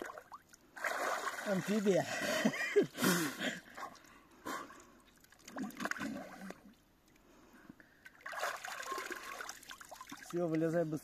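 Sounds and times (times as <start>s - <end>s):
water splashing: 0.0s - 2.1s, 5.1s - 6.8s, 8.0s - 11.0s
water gurgling: 8.2s - 10.6s.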